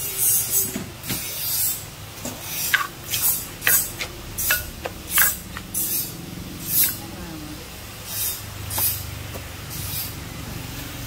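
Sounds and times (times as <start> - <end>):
pestle pounding in clay mortar: 2.6 - 6.0.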